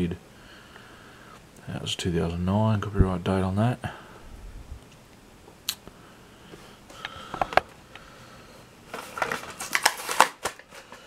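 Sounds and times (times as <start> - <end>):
crinkly plastic rustling: 8.9 - 11.0
plastic blister pack clicking: 9.0 - 10.8.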